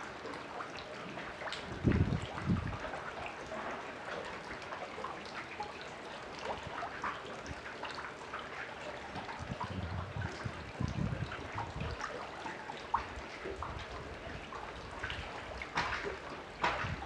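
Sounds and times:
waves lapping against a dock: 0:00.0 - 0:17.0.

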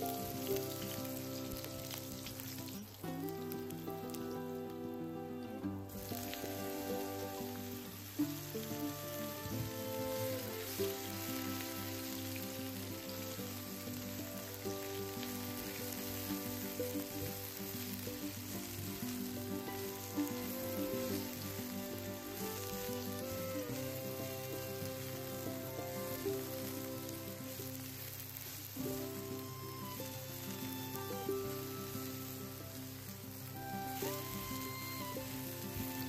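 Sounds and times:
slow background music: 0:00.0 - 0:36.0
vegetables sizzling in hot oil: 0:00.0 - 0:36.0.

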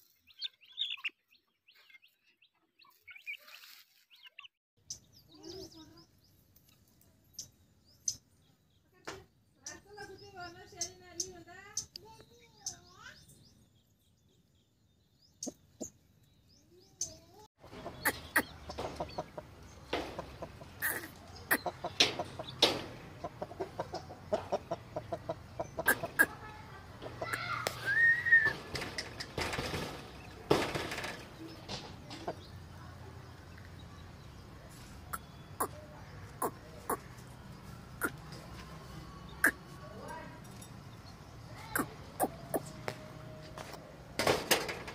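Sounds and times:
chickens clucking: 0:17.6 - 0:40.1, 0:41.5 - 0:43.8
clicks and rustles: 0:17.8 - 0:24.6, 0:25.8 - 0:32.7, 0:43.6 - 0:44.9.

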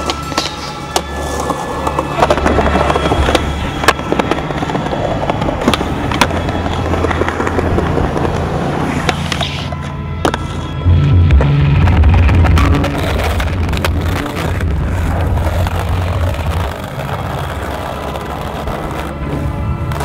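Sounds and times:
skateboard wheels rolling on concrete: 0:00.0 - 0:20.0
background music with bass line: 0:10.8 - 0:15.1.

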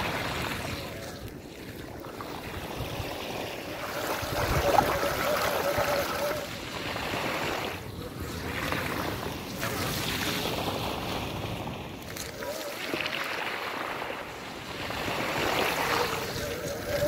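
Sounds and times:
wind noise on microphone: 0:00.0 - 0:17.0.

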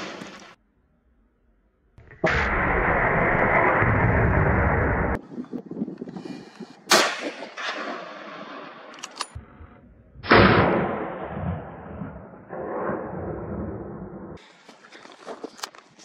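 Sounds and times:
gunshots with long echo: 0:06.9 - 0:09.1, 0:10.2 - 0:14.4.

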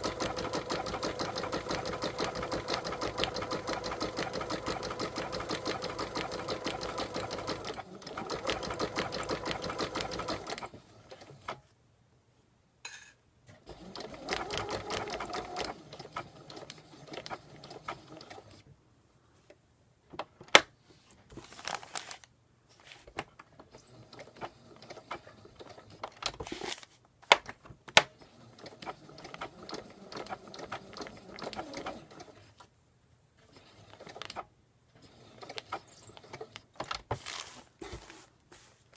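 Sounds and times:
sewing machine stitching: 0:00.0 - 0:11.6, 0:13.5 - 0:18.6, 0:23.7 - 0:26.1, 0:28.2 - 0:32.7, 0:33.4 - 0:36.9.

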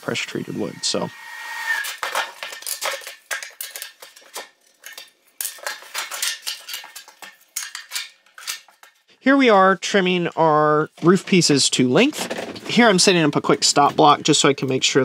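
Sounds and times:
wooden strips clattering: 0:01.8 - 0:09.0, 0:12.0 - 0:14.1.

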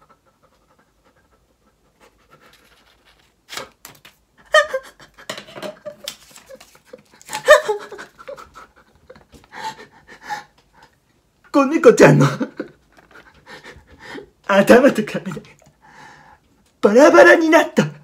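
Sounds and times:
man laughing excitedly: 0:04.4 - 0:10.5, 0:12.0 - 0:14.2
scissors cutting paper: 0:05.8 - 0:07.5.

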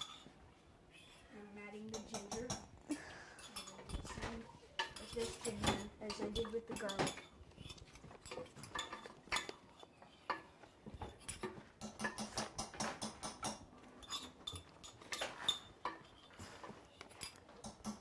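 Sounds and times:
metal utensils clinking on dishes: 0:00.0 - 0:00.3, 0:01.9 - 0:18.0.

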